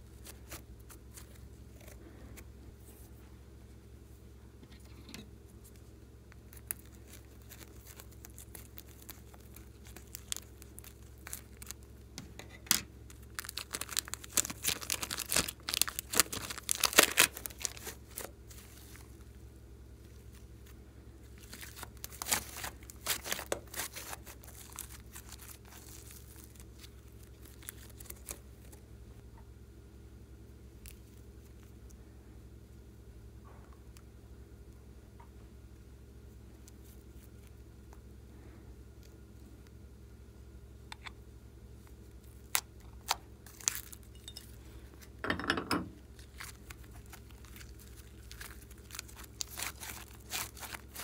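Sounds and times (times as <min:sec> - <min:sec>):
plastic bag crinkling: 0:05.7 - 0:19.2, 0:21.3 - 0:28.8, 0:42.3 - 0:45.2, 0:46.0 - 0:51.0.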